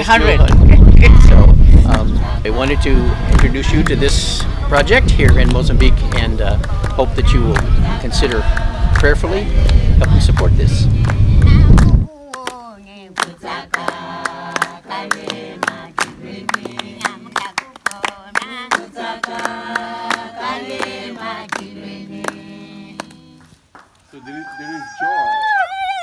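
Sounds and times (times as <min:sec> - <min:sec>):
voices singing together: 0:00.0 - 0:12.1, 0:13.0 - 0:23.6
sharp hand claps: 0:03.3 - 0:04.5, 0:13.2 - 0:22.4, 0:23.0 - 0:24.0.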